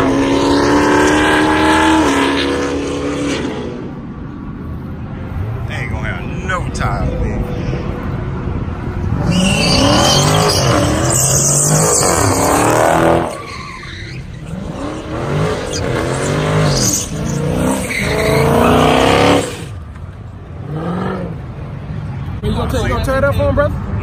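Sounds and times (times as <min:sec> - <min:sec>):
car engine revving: 0:00.0 - 0:04.1, 0:05.3 - 0:19.8, 0:20.5 - 0:21.7
tyres squealing on pavement: 0:09.2 - 0:19.8.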